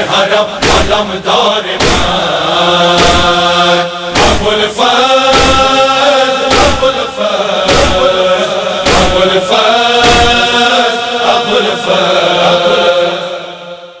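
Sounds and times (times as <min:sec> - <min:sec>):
male voices chanting: 0:00.0 - 0:14.0
chest-beating thumps: 0:00.6 - 0:01.1, 0:01.8 - 0:02.3, 0:03.0 - 0:03.5, 0:04.1 - 0:04.6, 0:05.3 - 0:05.8, 0:06.5 - 0:07.0, 0:07.6 - 0:08.2, 0:08.8 - 0:09.4, 0:10.0 - 0:10.6.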